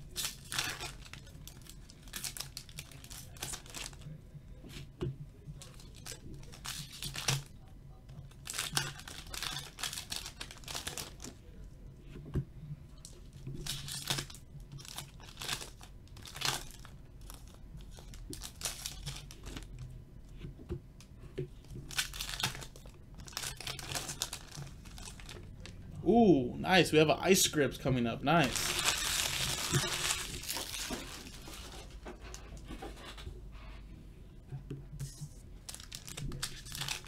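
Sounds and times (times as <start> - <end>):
foil wrappers tearing and crinkling: 0.0 - 4.1, 5.6 - 7.5, 8.3 - 11.3, 13.6 - 19.7, 21.9 - 25.5, 28.4 - 32.0, 35.7 - 37.0.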